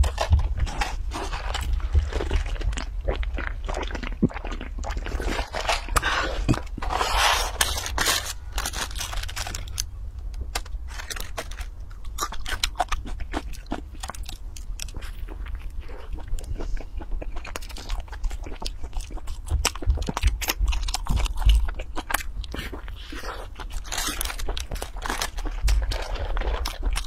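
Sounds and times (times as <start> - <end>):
paper packaging crinkling: 5.2 - 11.9, 23.6 - 27.0.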